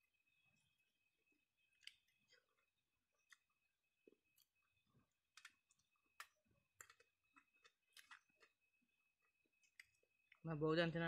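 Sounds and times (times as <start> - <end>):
wet clicks of eating by hand: 1.7 - 2.4, 5.3 - 8.6, 9.6 - 10.4.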